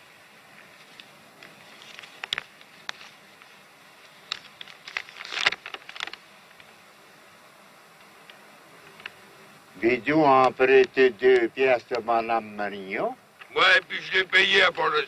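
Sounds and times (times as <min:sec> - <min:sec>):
faint steady hiss: 0:00.0 - 0:15.0
paper crackling and rustling: 0:00.8 - 0:03.6, 0:04.3 - 0:06.2.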